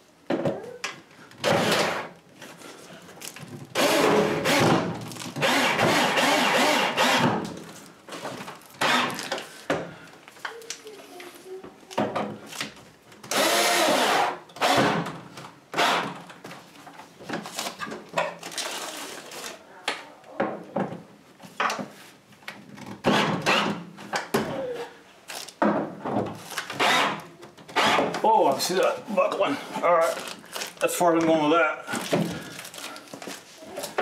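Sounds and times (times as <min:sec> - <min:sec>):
power drill driving bolts: 0:01.4 - 0:02.1, 0:03.8 - 0:04.8, 0:05.4 - 0:07.4, 0:08.8 - 0:09.2, 0:13.3 - 0:15.0, 0:26.7 - 0:28.2.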